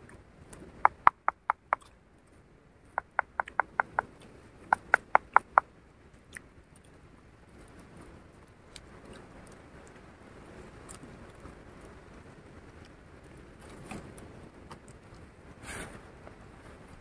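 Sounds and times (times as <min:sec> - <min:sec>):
small animal chirping: 0:00.8 - 0:01.9, 0:03.0 - 0:04.1, 0:04.7 - 0:05.6.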